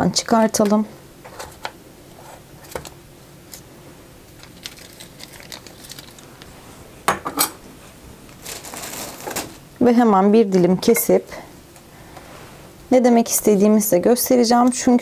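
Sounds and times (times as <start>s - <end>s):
baking paper rustling: 4.3s - 6.8s, 8.2s - 9.6s.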